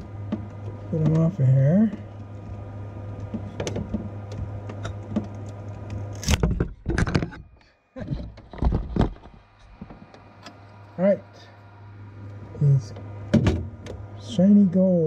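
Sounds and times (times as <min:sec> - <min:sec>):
knocks and rubbing from handling: 0:00.0 - 0:07.5, 0:08.1 - 0:10.3
fans humming: 0:00.0 - 0:15.0.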